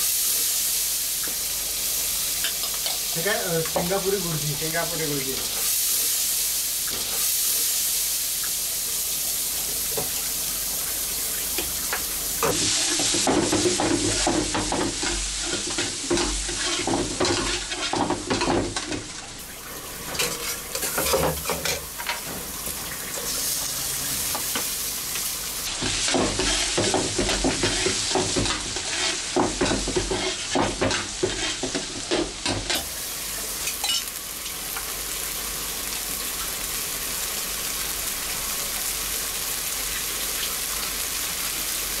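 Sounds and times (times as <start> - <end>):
onions sizzling in hot oil: 0.0 - 42.0
metal spatula scraping a wok: 16.2 - 18.0, 20.0 - 22.3, 26.0 - 32.0.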